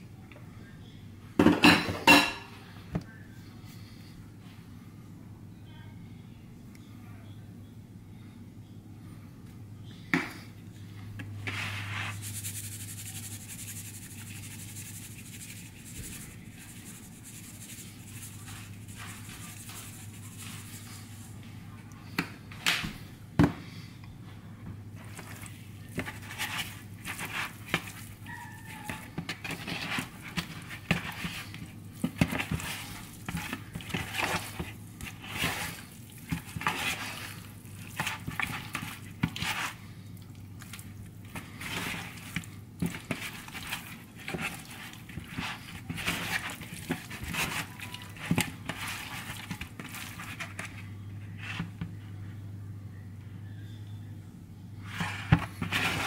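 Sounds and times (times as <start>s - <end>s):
meat squishing and slapping: 25.0s - 50.8s.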